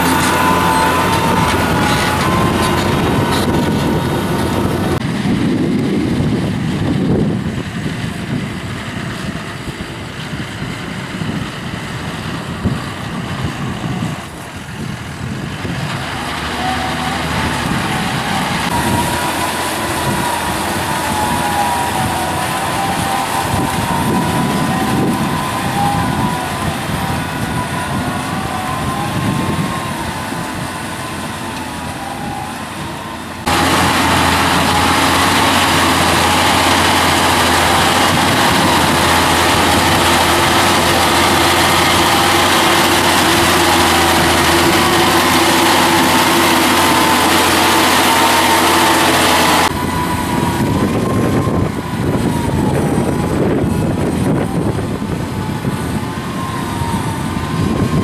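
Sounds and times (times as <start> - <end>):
tractor diesel engine under load: 0.0 - 58.0.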